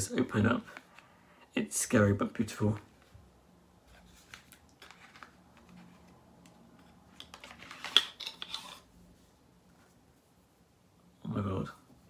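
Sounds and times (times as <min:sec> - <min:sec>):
box being handled and opened: 0:03.9 - 0:08.9.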